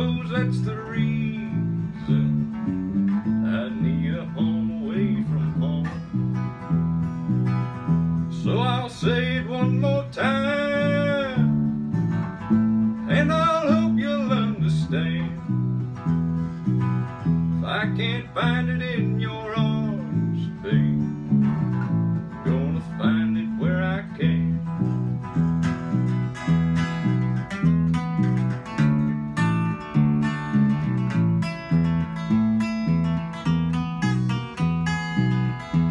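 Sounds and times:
man singing: 0:00.0 - 0:06.2, 0:08.3 - 0:11.8, 0:12.9 - 0:15.7, 0:17.5 - 0:24.9
acoustic guitar strumming: 0:00.0 - 0:35.9.

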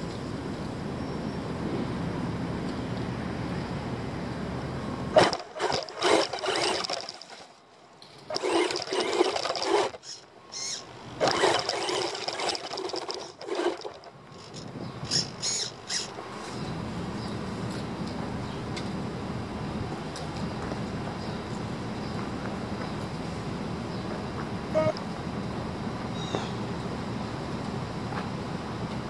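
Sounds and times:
tyres on dirt and gravel: 0:05.1 - 0:16.9
rc car motor bursts: 0:05.2 - 0:07.5, 0:08.3 - 0:16.1.

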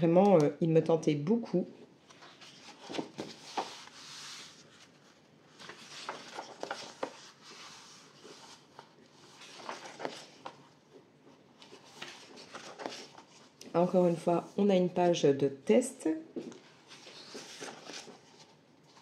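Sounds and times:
paper pages rustling: 0:02.0 - 0:14.2, 0:16.4 - 0:19.0.

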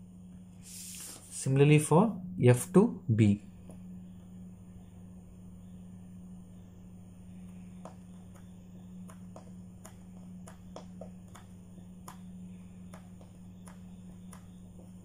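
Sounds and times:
low hum: 0:00.0 - 0:15.0
pencil ticking on paper: 0:07.4 - 0:15.0.

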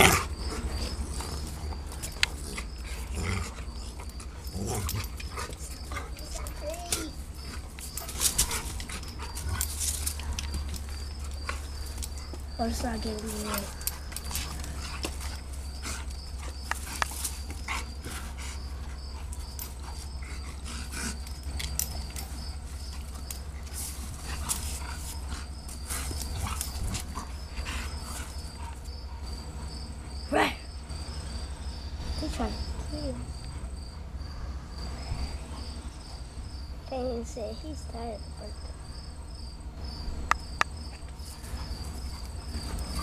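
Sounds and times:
dogs scuffling: 0:00.0 - 0:29.0, 0:40.8 - 0:43.0
insects chirping: 0:00.0 - 0:43.0
dog whining: 0:03.2 - 0:12.3.

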